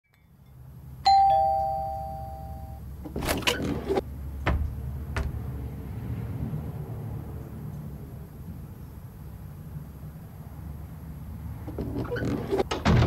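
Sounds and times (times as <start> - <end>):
two-note doorbell chime: 1.1 - 2.8
short knocks: 3.1 - 5.8.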